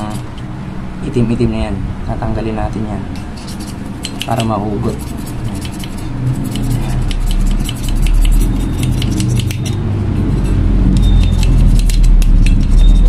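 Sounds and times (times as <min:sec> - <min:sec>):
metallic clicks and scrapes: 0:03.2 - 0:13.0
loud low rumble: 0:06.0 - 0:13.0.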